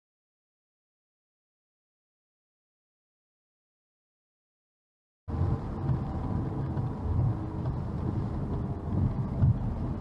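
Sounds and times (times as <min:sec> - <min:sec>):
car driving on wet road: 0:05.3 - 0:10.0.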